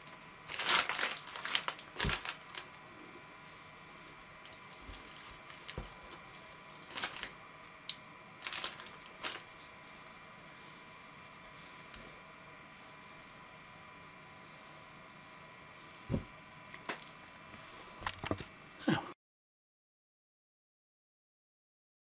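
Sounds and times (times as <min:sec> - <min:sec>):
plastic packaging crinkling: 0:00.0 - 0:02.8, 0:03.9 - 0:10.2
soft thumps: 0:16.0 - 0:16.3.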